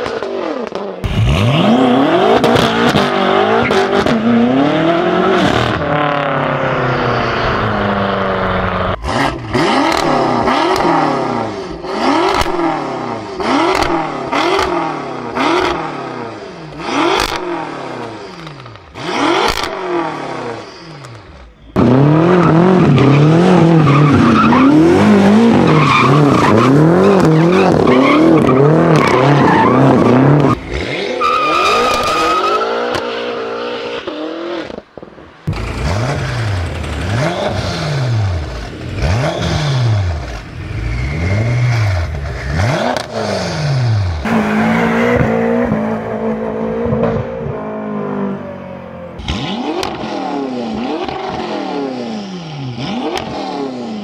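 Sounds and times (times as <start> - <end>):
car engine revving: 0.0 - 54.0
exhaust cracks: 34.6 - 46.0.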